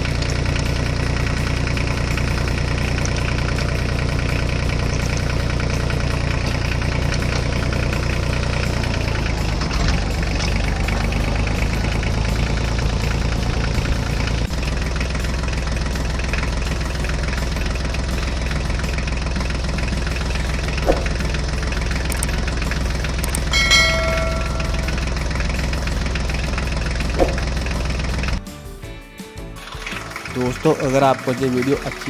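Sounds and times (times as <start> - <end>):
tractor engine running: 0.0 - 28.5, 29.4 - 32.0
short high pitched tone: 23.4 - 25.5.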